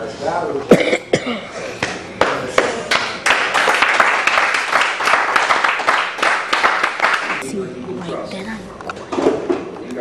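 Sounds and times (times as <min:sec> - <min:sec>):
spectators applauding: 0:02.2 - 0:07.4.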